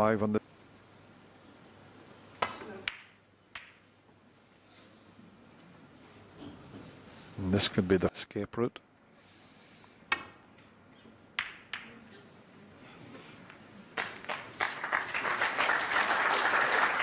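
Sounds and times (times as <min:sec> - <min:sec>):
snooker balls clicking: 0:02.4 - 0:03.9, 0:11.3 - 0:12.2
audience applauding: 0:14.0 - 0:17.0.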